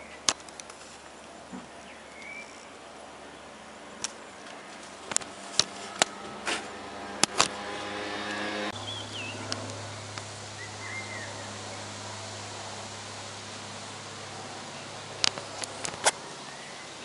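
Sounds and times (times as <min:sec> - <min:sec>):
propeller plane engine droning: 0:00.0 - 0:17.0
bird chirps: 0:01.2 - 0:03.6, 0:08.8 - 0:12.4, 0:16.1 - 0:17.0.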